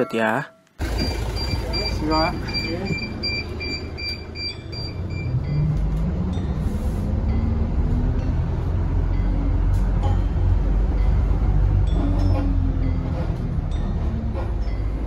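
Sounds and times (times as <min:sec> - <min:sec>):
bus diesel engine rumbling: 0:00.0 - 0:15.0
short electronic beeps: 0:00.4 - 0:05.7.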